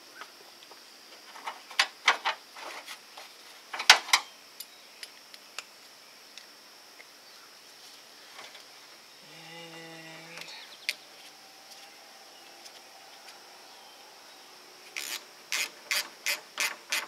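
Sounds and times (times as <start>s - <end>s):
ratchet wrench clicking: 15.0s - 17.0s.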